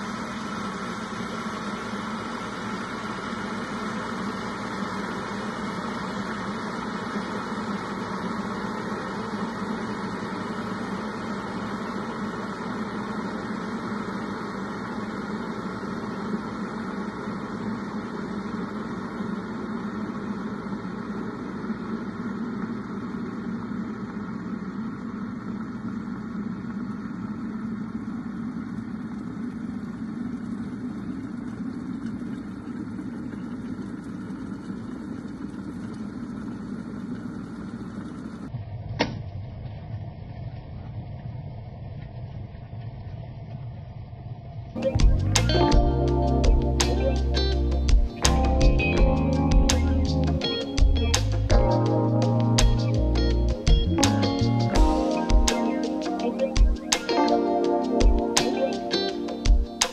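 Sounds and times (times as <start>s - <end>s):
electric kettle heating water: 0.0s - 39.2s.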